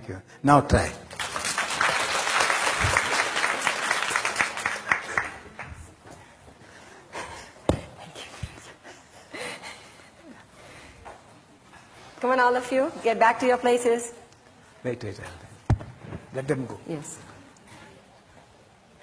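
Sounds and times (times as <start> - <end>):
crowd murmuring and moving: 0.7 - 19.0
audience applauding: 1.1 - 5.8.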